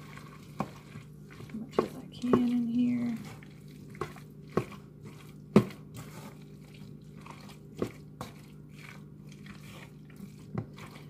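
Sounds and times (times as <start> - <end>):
spoon stirring thick mixture: 0.0 - 11.0.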